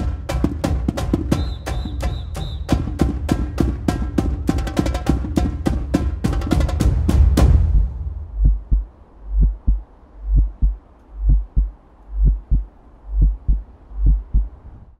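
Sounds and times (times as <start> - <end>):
heartbeat thumps: 0.0 - 14.6.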